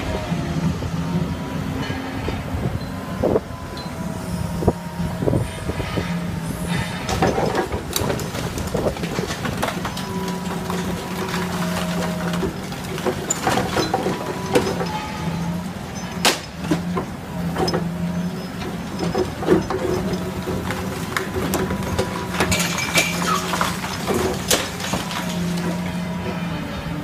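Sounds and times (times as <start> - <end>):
excavator engine running: 0.0 - 27.0
masonry cracking and clattering: 6.7 - 26.4.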